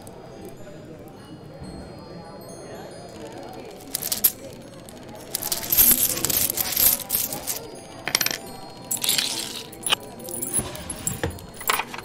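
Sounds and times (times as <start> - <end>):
background murmur: 0.0 - 12.0
metal pieces jingling: 3.8 - 12.0.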